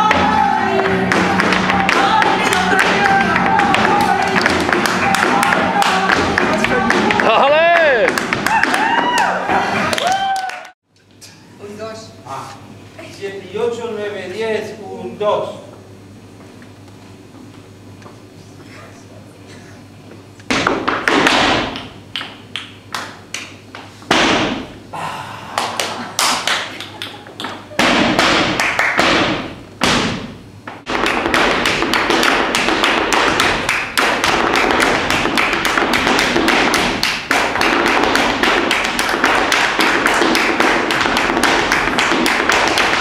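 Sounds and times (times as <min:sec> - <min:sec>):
dancer's shoes stamping on floor: 0:00.0 - 0:09.6, 0:20.5 - 0:22.4, 0:27.3 - 0:43.0.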